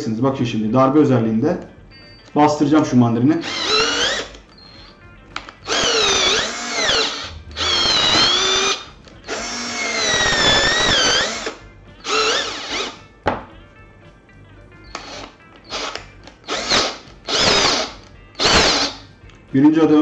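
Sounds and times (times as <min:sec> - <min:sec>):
cordless drill motor whine: 0:03.4 - 0:05.0, 0:05.6 - 0:13.0, 0:14.9 - 0:19.0.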